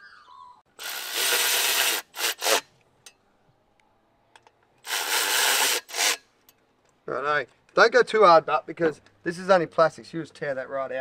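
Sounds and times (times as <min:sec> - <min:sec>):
cordless ratchet spinning: 0:00.8 - 0:02.6.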